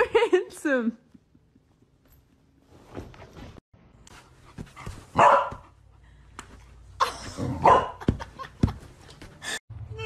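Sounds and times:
dog barking: 0:05.1 - 0:05.7, 0:07.6 - 0:08.0.

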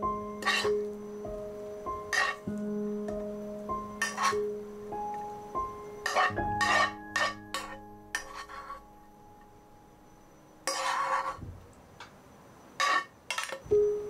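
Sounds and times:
metal spoon scraping frying pan: 0:00.4 - 0:00.8, 0:02.1 - 0:02.5, 0:04.0 - 0:04.5, 0:06.0 - 0:08.9, 0:10.6 - 0:11.4, 0:12.8 - 0:13.7.

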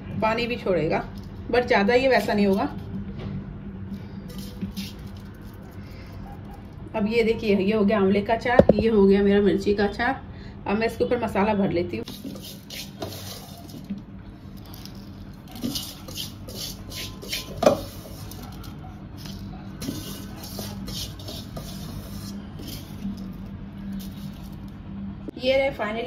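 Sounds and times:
sharp knock: 0:08.6 - 0:08.9.

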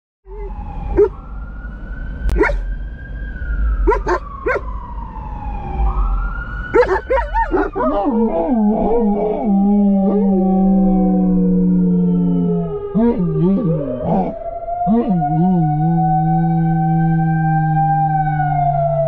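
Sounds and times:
dog barks: 0:00.3 - 0:01.2, 0:02.4 - 0:02.7, 0:03.9 - 0:04.7, 0:06.8 - 0:08.1
dogs howling and yipping: 0:00.3 - 0:01.2, 0:02.3 - 0:02.7, 0:03.8 - 0:04.7, 0:06.7 - 0:14.4
fire truck siren wailing: 0:00.3 - 0:19.0.

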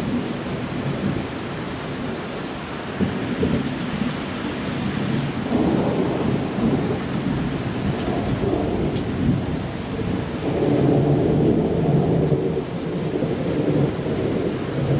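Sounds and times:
steady rain: 0:00.0 - 0:14.9
thunder rumbling: 0:02.9 - 0:14.9.

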